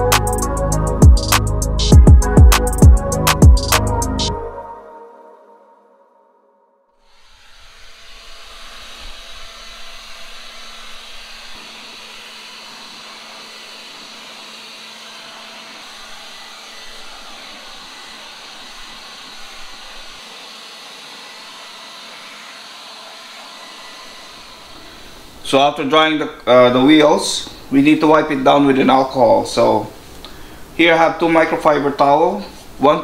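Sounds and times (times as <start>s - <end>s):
leaf blower running: 7.0s - 26.2s.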